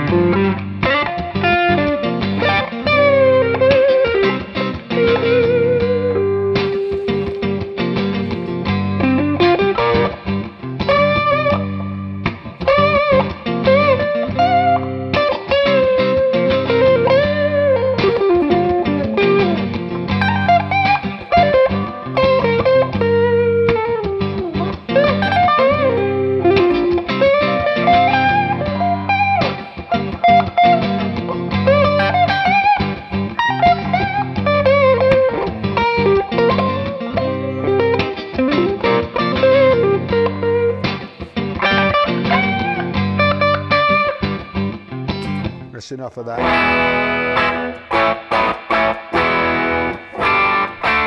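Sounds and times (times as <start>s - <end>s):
electric guitar through an amp: 0.0s - 51.0s.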